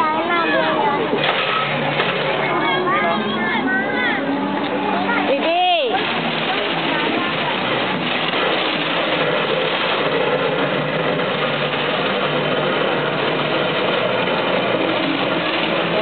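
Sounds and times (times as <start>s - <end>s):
engine running: 0.0s - 16.0s
fire hose spraying water: 0.8s - 2.6s, 4.6s - 16.0s.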